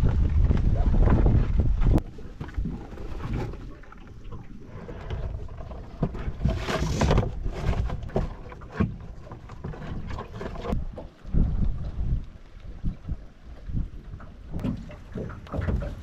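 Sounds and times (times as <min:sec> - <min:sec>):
plastic tub knocking and scraping: 0:05.9 - 0:10.8.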